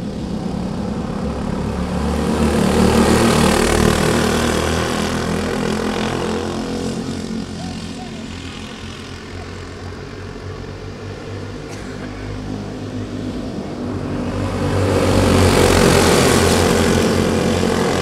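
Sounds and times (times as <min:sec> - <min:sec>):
go-kart engines racing: 0:00.0 - 0:18.0.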